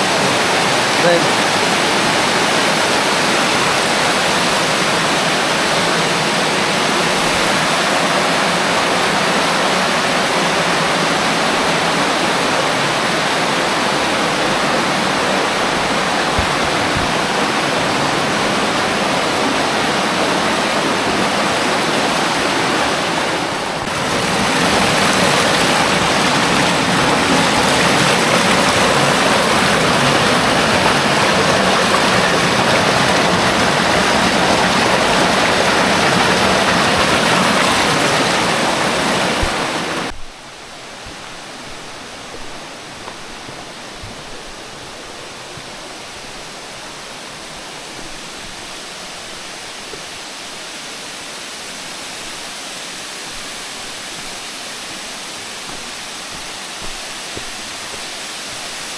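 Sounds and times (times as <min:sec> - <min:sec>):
water rushing over rock: 0:00.0 - 0:58.9.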